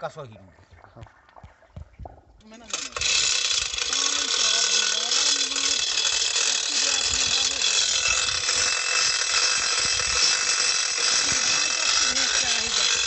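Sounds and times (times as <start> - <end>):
chain hoist ratchet clicks: 2.6 - 13.0
chain rattle: 2.6 - 13.0.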